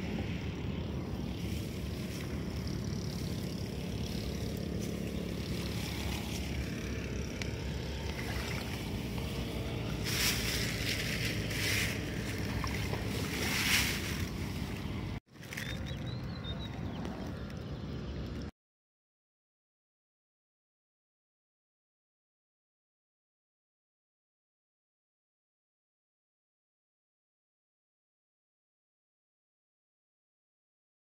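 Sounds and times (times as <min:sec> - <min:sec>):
wind buffeting microphone: 0:00.0 - 0:18.5
plastic bag rustling: 0:10.0 - 0:16.0.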